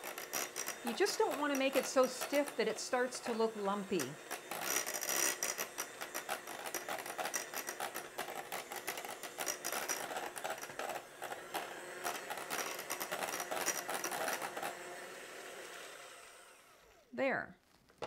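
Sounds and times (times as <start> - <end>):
electric hand mixer running: 0.0 - 17.1.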